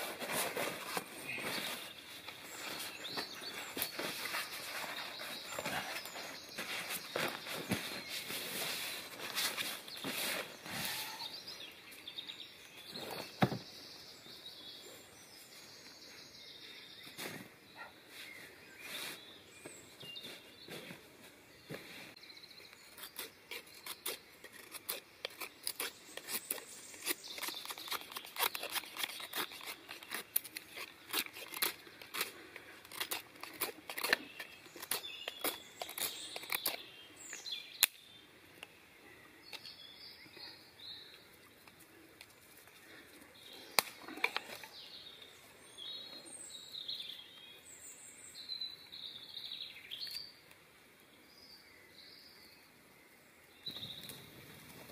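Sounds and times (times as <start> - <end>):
knife scraping a stick: 0.0 - 11.4, 22.8 - 36.8
small birds chirping: 0.0 - 54.9.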